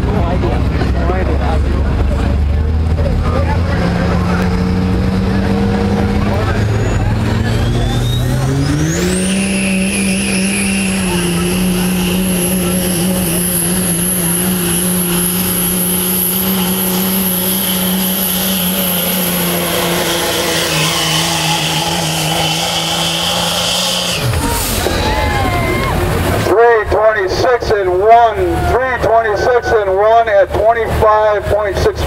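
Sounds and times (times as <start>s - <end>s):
diesel truck engine at full throttle: 0.0s - 32.0s
turbo whistle: 6.6s - 12.6s.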